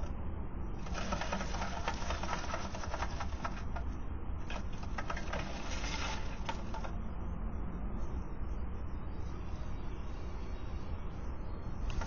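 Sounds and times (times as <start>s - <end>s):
steady low hum: 0.0s - 12.0s
bird wings fluttering: 0.8s - 3.8s
dry twigs rustling: 4.4s - 6.9s.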